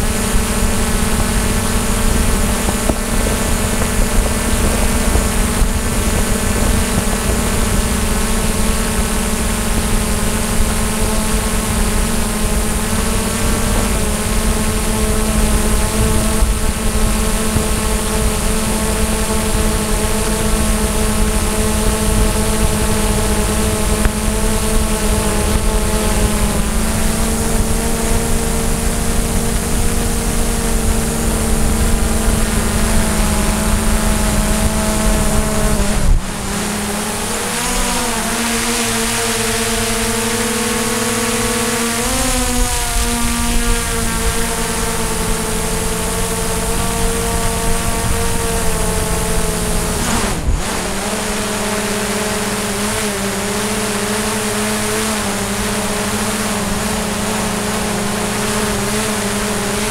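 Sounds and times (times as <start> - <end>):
drone propellers whining: 0.0 - 59.9.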